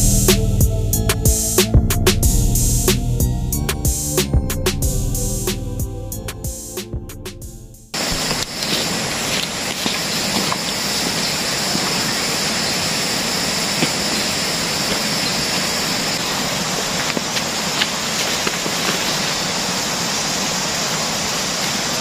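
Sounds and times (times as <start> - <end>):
rushing outdoor ambience: 7.9 - 22.0.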